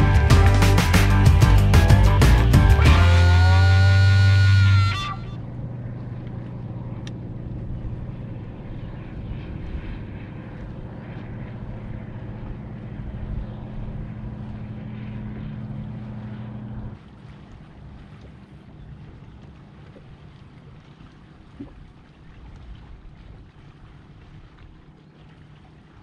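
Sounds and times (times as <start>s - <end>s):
electric trolling motor humming: 0.0s - 20.8s.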